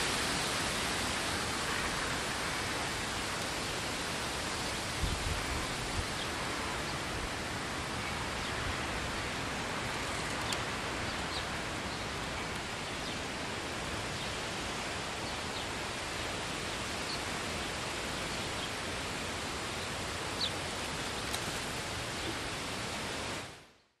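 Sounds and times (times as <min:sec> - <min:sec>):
wind rushing through trees: 0:00.0 - 0:24.0.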